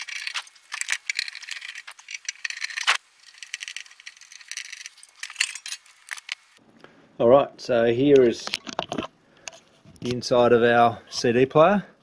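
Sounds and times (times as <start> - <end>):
screwdriver metallic clicks and scrapes: 0.0 - 6.5.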